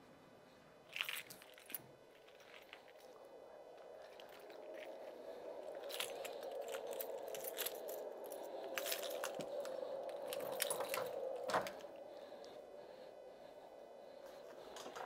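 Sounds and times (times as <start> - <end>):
keys jangling: 5.8 - 11.8.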